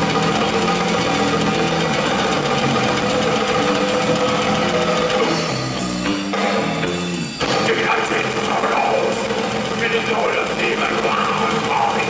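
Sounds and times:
black metal played live: 0:00.0 - 0:12.0
drum kit: 0:00.0 - 0:12.0
low distorted notes: 0:00.0 - 0:12.0.

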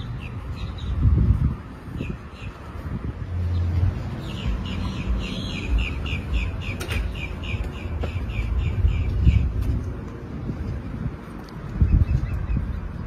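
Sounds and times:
bird singing repeated notes: 0:03.6 - 0:09.5.

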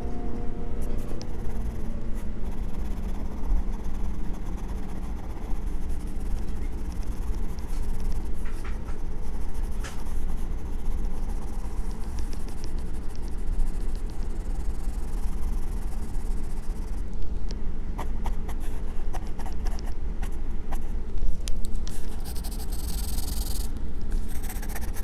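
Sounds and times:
steady low rumble: 0:00.0 - 0:25.0
pencil scratching on paper: 0:00.8 - 0:17.1, 0:21.9 - 0:25.0.

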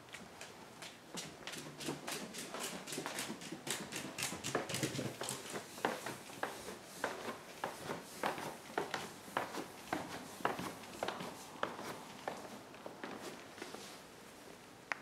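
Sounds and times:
dog claws clicking on wood: 0:00.4 - 0:05.5
heavy footsteps on wooden floor: 0:04.6 - 0:13.7.

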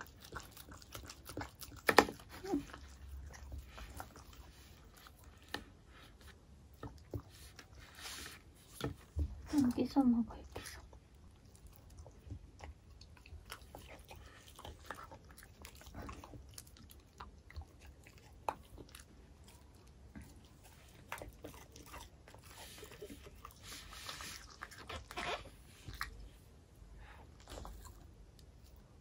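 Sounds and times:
dog chewing with wet smacks: 0:00.0 - 0:07.8, 0:08.6 - 0:26.3.

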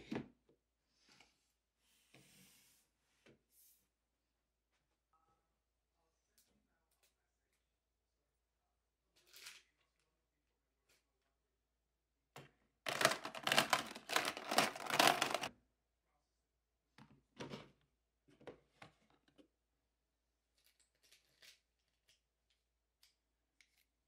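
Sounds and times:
plastic drawers rattling: 0:12.9 - 0:15.5.

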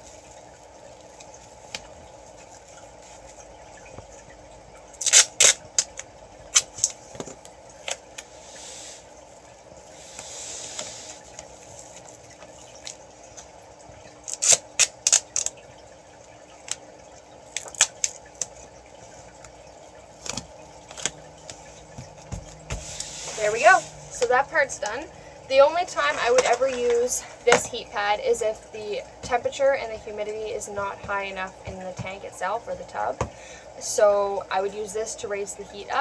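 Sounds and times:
tape unrolling rasps: 0:05.0 - 0:07.0, 0:14.2 - 0:15.6, 0:17.5 - 0:18.5
duct tape crackling and snapping: 0:05.0 - 0:08.3, 0:10.8 - 0:15.6, 0:17.5 - 0:19.6, 0:20.2 - 0:22.7.

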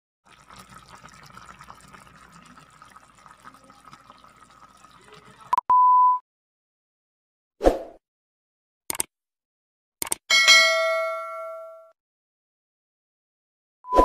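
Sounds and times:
pot bubbling and crackling: 0:00.2 - 0:05.6
click: 0:08.9 - 0:09.1, 0:10.0 - 0:10.2.

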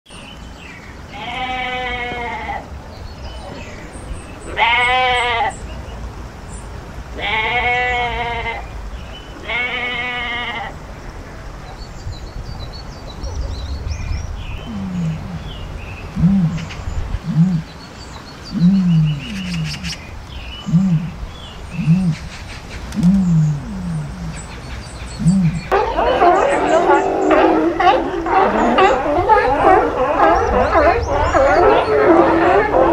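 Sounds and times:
goats bleating: 0:04.5 - 0:05.6, 0:07.2 - 0:08.6, 0:09.4 - 0:10.7
ostrich grunting calls: 0:14.6 - 0:17.8, 0:18.5 - 0:20.0, 0:20.6 - 0:22.3, 0:23.0 - 0:32.9.

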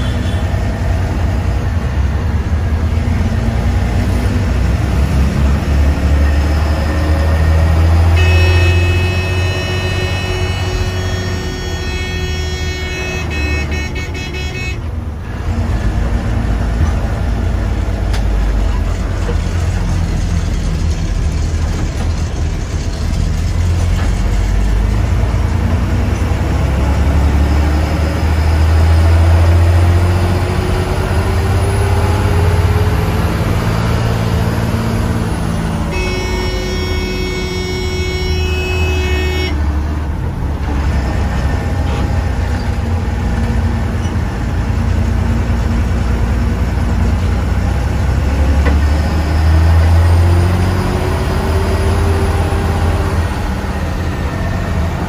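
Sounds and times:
diesel bus engine droning: 0:00.0 - 0:55.0
vehicle horn chord: 0:08.0 - 0:14.9, 0:35.8 - 0:39.7.

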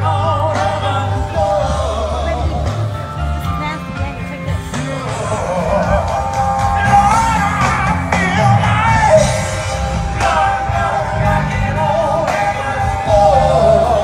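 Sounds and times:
amplified rock music with singer: 0:00.0 - 0:14.0.

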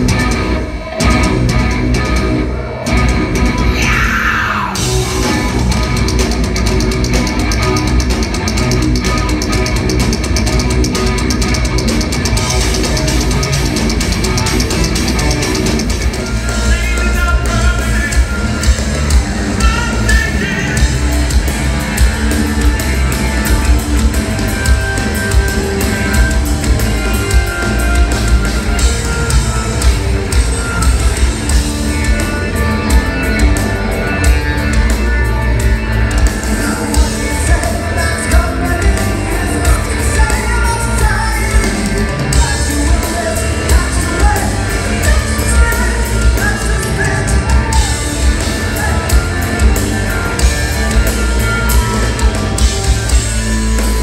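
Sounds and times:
heavy metal band playing: 0:00.0 - 0:54.0
male lead vocal: 0:03.6 - 0:05.7, 0:16.2 - 0:18.9, 0:19.6 - 0:21.1, 0:36.5 - 0:52.4.

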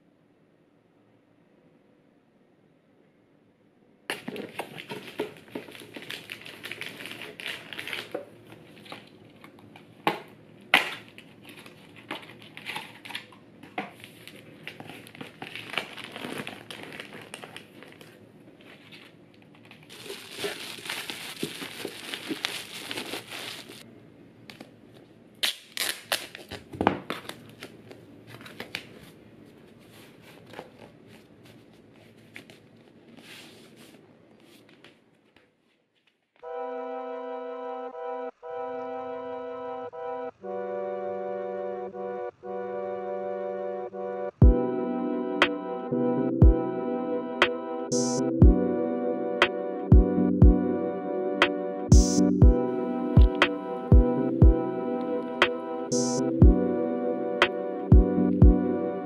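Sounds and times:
packaging crinkling and rustling: 0:04.1 - 0:23.8, 0:24.5 - 0:36.2.

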